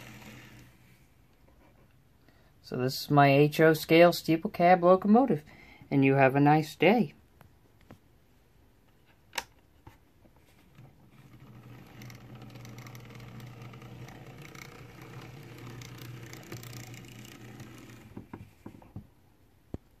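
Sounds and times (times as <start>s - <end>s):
model locomotive motor humming: 0.0s - 0.9s, 11.1s - 18.3s.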